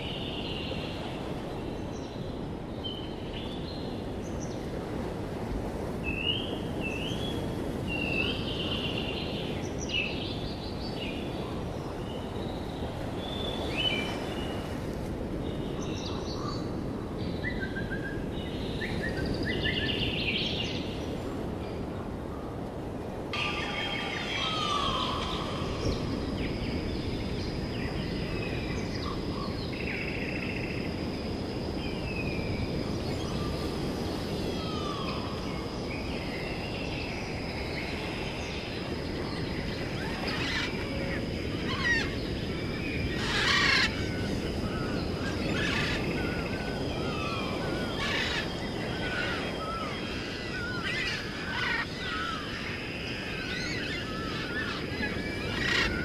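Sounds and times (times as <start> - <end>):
outdoor background hiss: 0.0 - 56.0
birds chirping: 39.8 - 41.0, 43.0 - 44.0, 47.1 - 52.7, 53.4 - 56.0.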